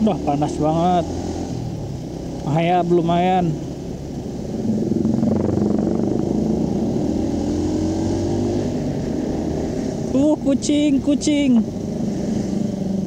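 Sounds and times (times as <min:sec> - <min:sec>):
wind and road noise: 0:00.0 - 0:13.0
motorcycle engine accelerating: 0:04.2 - 0:10.1.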